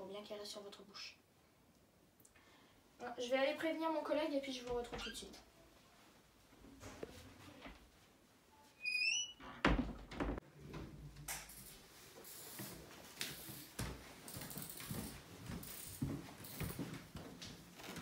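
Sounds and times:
door hinge squeaking: 0:08.8 - 0:09.8
soft footsteps: 0:10.0 - 0:18.0.

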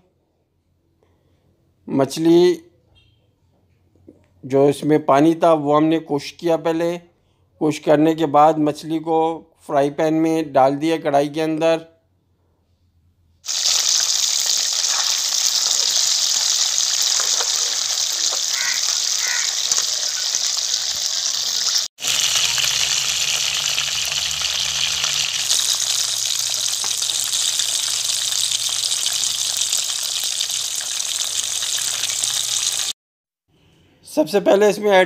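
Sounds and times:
fish sizzling in hot oil: 0:13.5 - 0:33.0.

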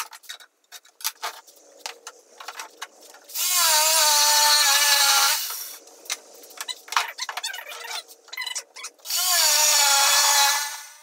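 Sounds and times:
electric jigsaw motor whine: 0:09.0 - 0:11.0.

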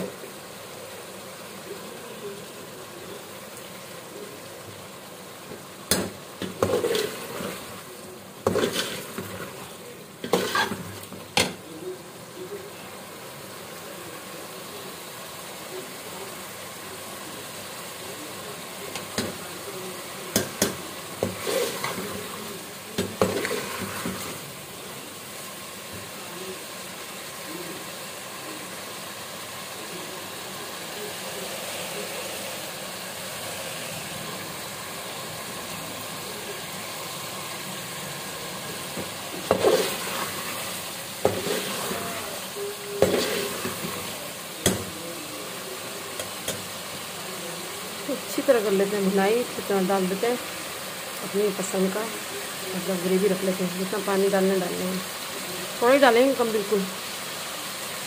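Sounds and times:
food sizzling in oil: 0:00.0 - 0:58.0
ladle scraping a metal pot: 0:08.5 - 0:09.6, 0:10.2 - 0:11.1.

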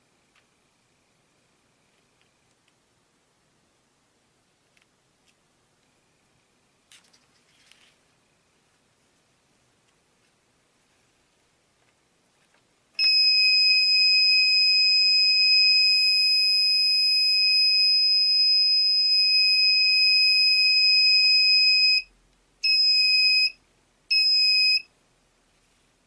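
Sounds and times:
buzzer high-pitched tone: 0:13.0 - 0:24.9.

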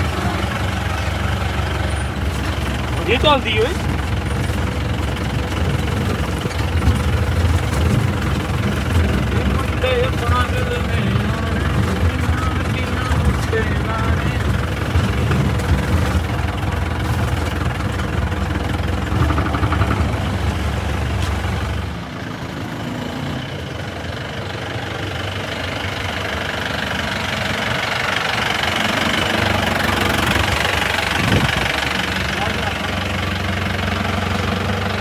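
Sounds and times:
jeep engine rumbling: 0:00.0 - 0:35.0.

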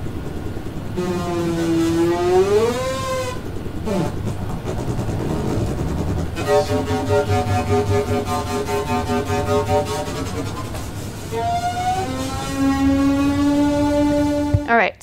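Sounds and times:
low noisy synth texture: 0:00.0 - 0:14.9
synth tone with rich overtones: 0:01.0 - 0:14.7
synth tone gliding upward: 0:11.3 - 0:14.7.

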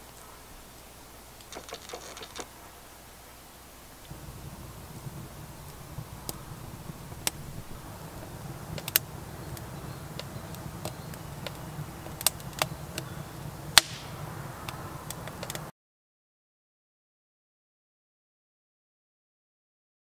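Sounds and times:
campfire crackling and popping: 0:01.3 - 0:02.6, 0:04.0 - 0:15.7.

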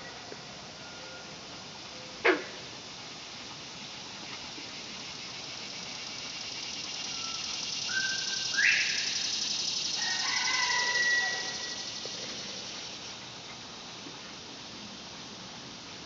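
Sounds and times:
cicadas droning: 0:00.0 - 0:16.0
quail whistling call: 0:07.1 - 0:09.2, 0:10.0 - 0:11.9
rooster crowing: 0:10.0 - 0:12.0.

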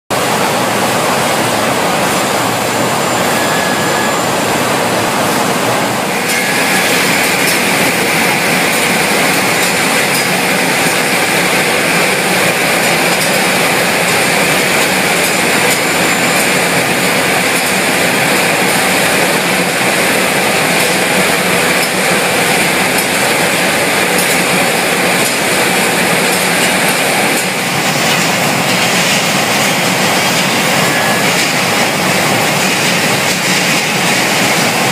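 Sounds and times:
loud processing line machinery: 0:00.1 - 0:34.9.

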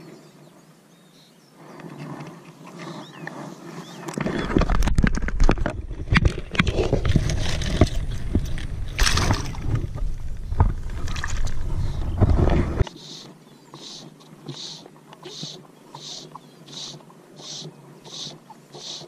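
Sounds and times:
water sloshing and splashing: 0:04.1 - 0:12.8
handling noise at microphone: 0:04.1 - 0:12.9.

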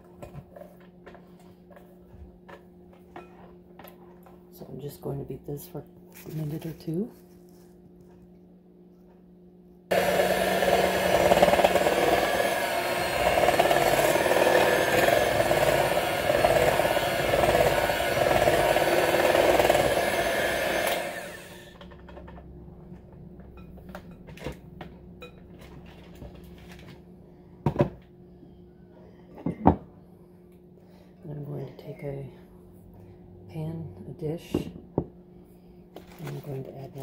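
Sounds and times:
electric hand mixer running: 0:09.9 - 0:21.8.

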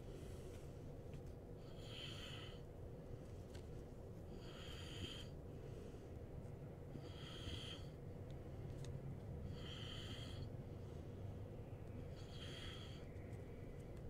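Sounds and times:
low steady hum: 0:00.0 - 0:14.0
man breathing through nose: 0:09.4 - 0:11.4, 0:12.1 - 0:13.2.

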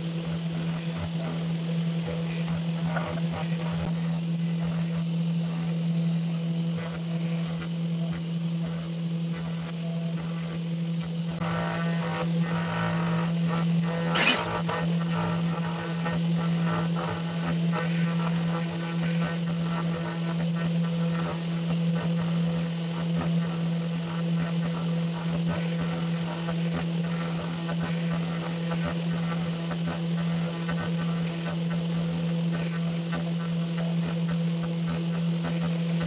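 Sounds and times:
cutter carving wood: 0:00.0 - 0:18.8
router spindle humming: 0:00.0 - 0:36.0.

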